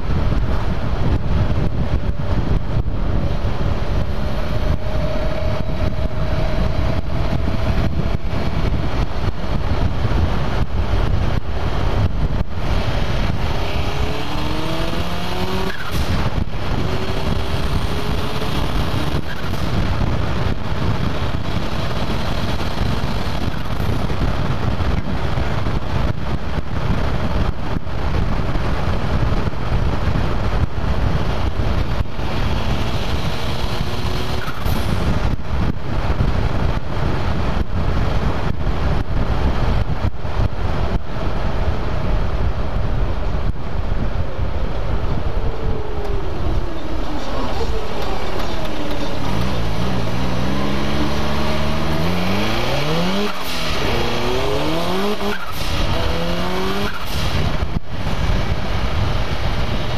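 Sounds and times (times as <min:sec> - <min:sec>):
road and wind noise: 0:00.0 - 0:59.9
turbocharged engine pulling: 0:00.1 - 0:25.8, 0:31.1 - 0:36.6, 0:44.6 - 0:59.9.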